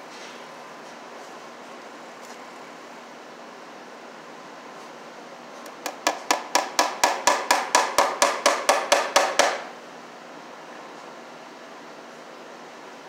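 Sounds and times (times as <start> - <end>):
hammer striking wood: 5.8 - 9.7.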